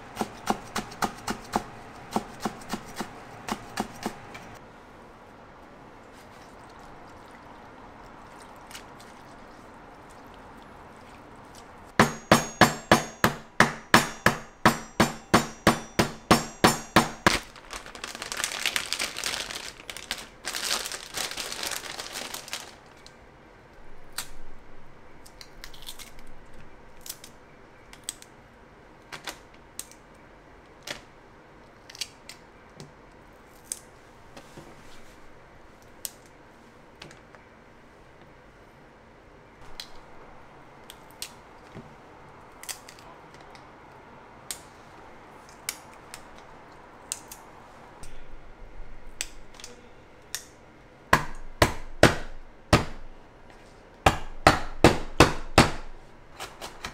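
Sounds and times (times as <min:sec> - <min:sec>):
plastic bag crinkling: 0:17.2 - 0:23.1.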